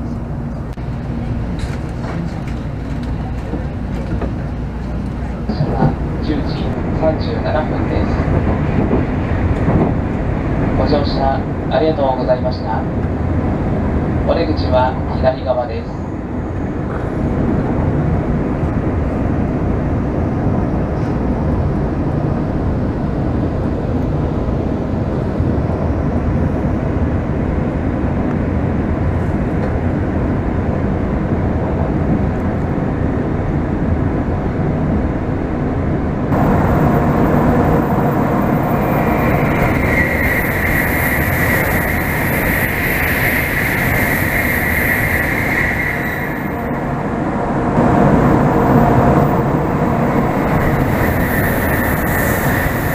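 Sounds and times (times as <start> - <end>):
passing train rush and hiss: 0.0 - 52.9
train wheels rumbling on rail: 0.0 - 52.9
steady whine: 35.5 - 52.9.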